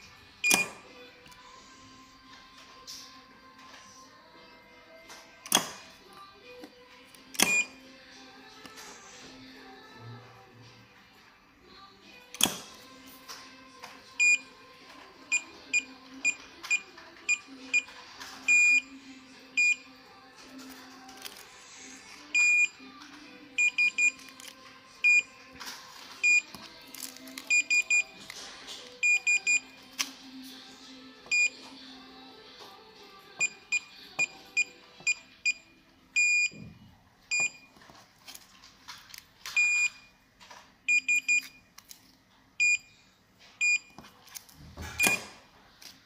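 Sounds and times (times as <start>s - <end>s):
keypad beeping: 0.4s - 0.8s, 7.3s - 7.8s, 14.2s - 14.5s, 15.3s - 18.9s, 19.6s - 19.9s, 22.3s - 22.8s, 23.6s - 24.3s, 25.0s - 25.4s, 26.2s - 26.6s, 27.5s - 28.3s, 29.0s - 29.8s, 31.3s - 31.6s, 33.4s - 36.7s, 37.3s - 37.8s, 39.5s - 40.1s, 40.9s - 41.8s, 42.6s - 42.9s, 43.6s - 44.0s, 44.9s - 45.3s.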